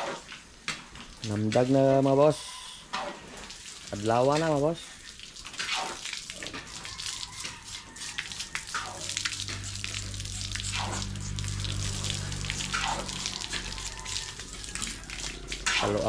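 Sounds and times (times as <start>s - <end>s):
water running and splashing: 3.0s - 16.0s
low steady hum: 7.8s - 16.0s.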